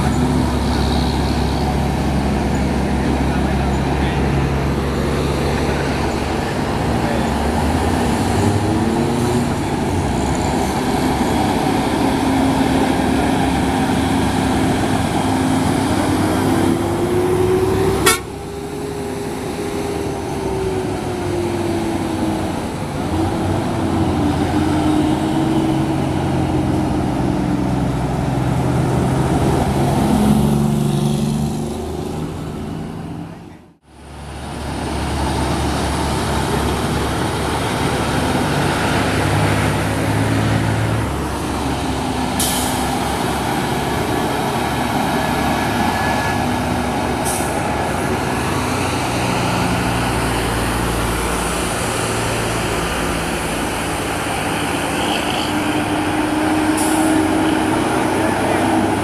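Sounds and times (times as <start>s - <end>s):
truck diesel engines pulling uphill: 0.0s - 59.0s.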